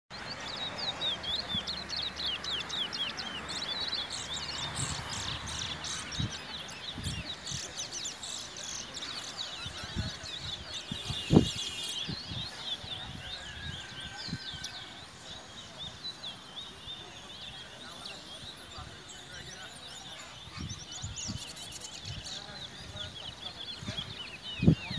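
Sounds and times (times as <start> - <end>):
finch twittering song: 0.1 - 24.9.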